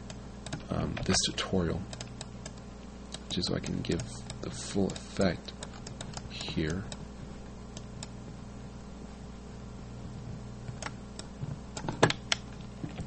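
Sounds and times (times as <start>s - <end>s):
low background hum: 0.0s - 13.0s
keyboard and mouse clicks: 0.4s - 1.2s, 1.9s - 7.0s, 10.1s - 13.0s.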